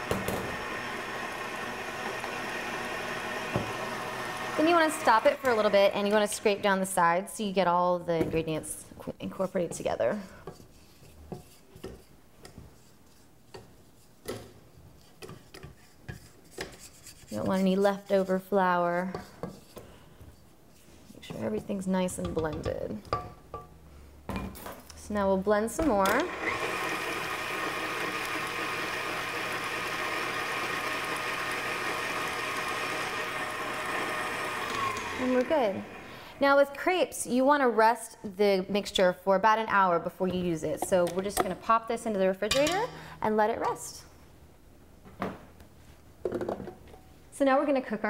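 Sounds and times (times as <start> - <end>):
stand mixer motor whining: 0.0 - 6.4, 26.2 - 36.3
spatula scraping metal bowl: 15.0 - 19.8.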